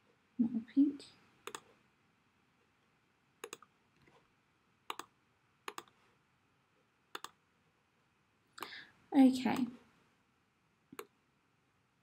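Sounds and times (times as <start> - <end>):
computer mouse clicks: 1.4 - 1.7, 3.4 - 4.2, 4.9 - 5.1, 5.7 - 6.0, 7.1 - 7.4.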